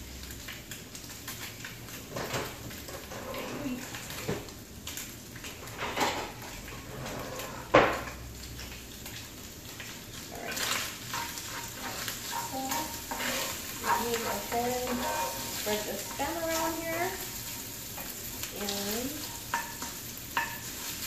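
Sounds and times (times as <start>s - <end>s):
spatula scraping skillet: 1.9s - 4.5s, 5.6s - 8.2s, 9.8s - 21.0s.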